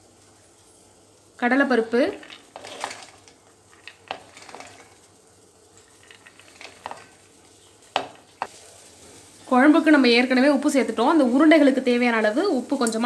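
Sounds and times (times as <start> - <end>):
split peas landing on metal: 7.9 - 8.5.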